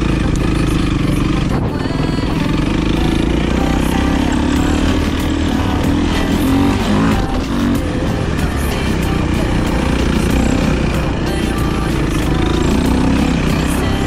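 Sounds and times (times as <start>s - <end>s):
dirt bike engine revving: 0.0s - 14.0s.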